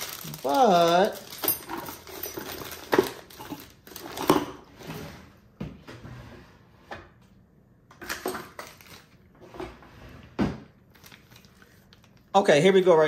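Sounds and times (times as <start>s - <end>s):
small hard objects clattering: 0.0s - 4.6s.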